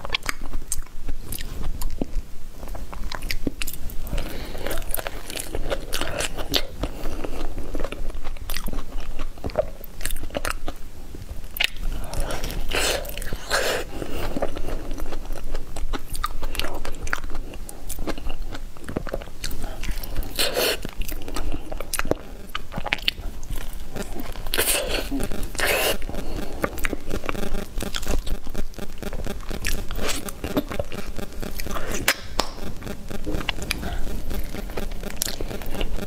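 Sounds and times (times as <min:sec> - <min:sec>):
biting and chewing soft food: 0:00.0 - 0:36.0.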